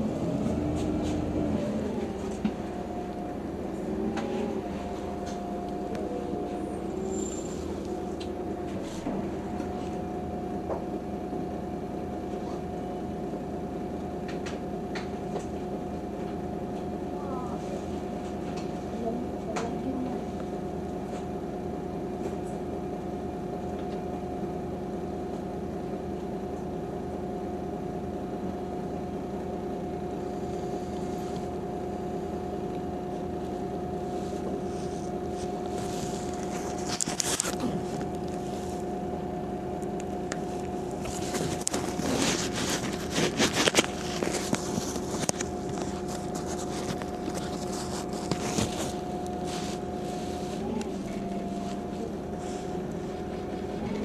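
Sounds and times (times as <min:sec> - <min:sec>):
bus engine hum: 0:00.0 - 0:11.1, 0:30.1 - 0:54.0.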